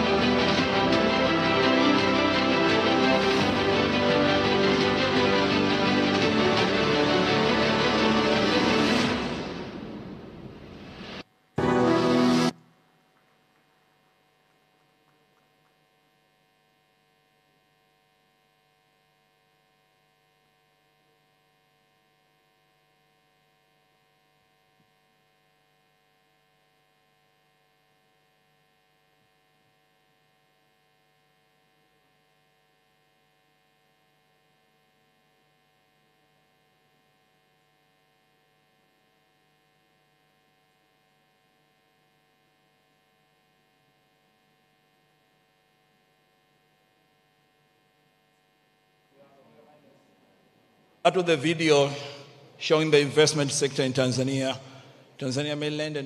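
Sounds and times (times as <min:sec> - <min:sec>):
faint electrical hum: 0:12.5 - 0:56.0.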